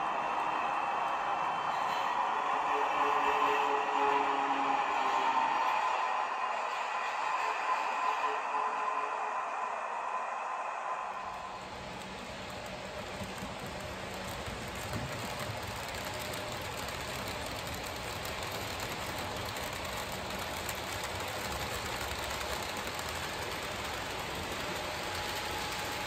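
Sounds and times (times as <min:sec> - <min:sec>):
model train wheels clattering on track: 0:11.5 - 0:26.0.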